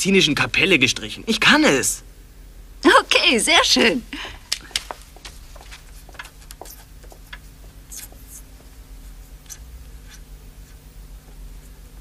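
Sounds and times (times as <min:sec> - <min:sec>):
low steady hum: 0:00.0 - 0:12.0
pen scratching on paper: 0:07.9 - 0:10.8.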